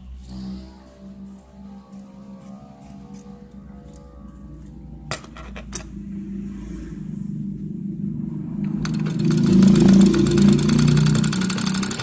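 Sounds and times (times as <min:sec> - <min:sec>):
sewing machine motor stitching: 0:08.8 - 0:12.0.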